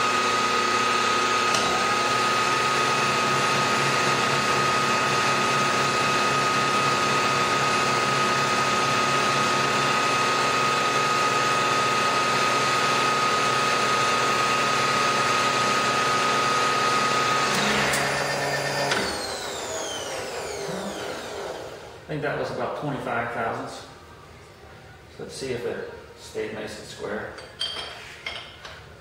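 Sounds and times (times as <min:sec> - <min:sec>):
high whine of milling cut: 0:00.0 - 0:22.0.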